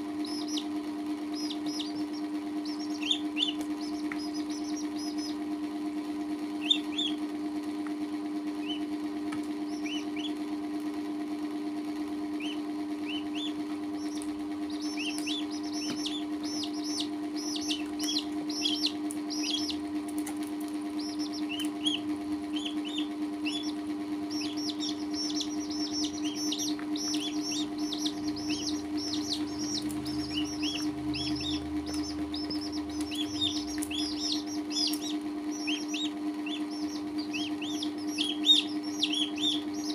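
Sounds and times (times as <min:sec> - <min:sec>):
chicks and duckling peeping: 0:00.0 - 0:07.7, 0:08.5 - 0:39.9
low hum: 0:12.3 - 0:39.9.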